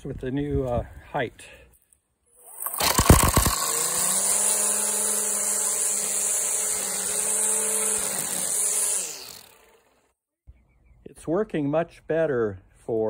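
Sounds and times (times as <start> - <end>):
string trimmer whining: 2.3 - 10.2.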